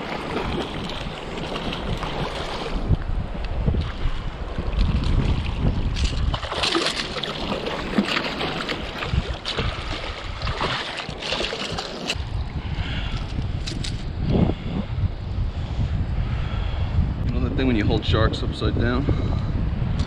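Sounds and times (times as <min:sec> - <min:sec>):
wind buffeting microphone: 0:00.0 - 0:20.0
fish thrashing and splashing: 0:04.8 - 0:12.2.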